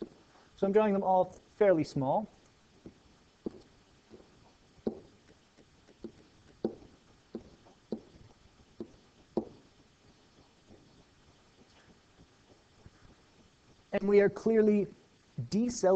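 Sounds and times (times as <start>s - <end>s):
stylus tapping and scraping: 0.0s - 0.4s, 2.4s - 13.9s.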